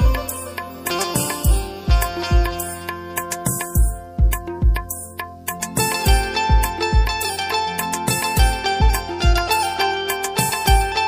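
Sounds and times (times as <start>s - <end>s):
deep drum beat: 0.0s - 7.3s, 8.1s - 9.6s
plucked banjo melody: 0.0s - 11.0s.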